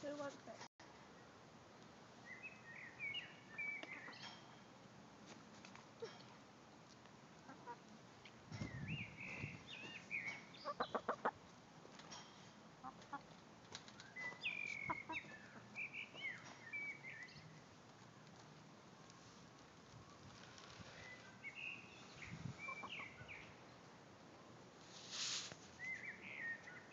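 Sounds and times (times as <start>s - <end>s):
hens chirping and trilling: 7.4s - 7.8s, 8.5s - 11.4s, 12.8s - 17.6s, 20.1s - 23.6s.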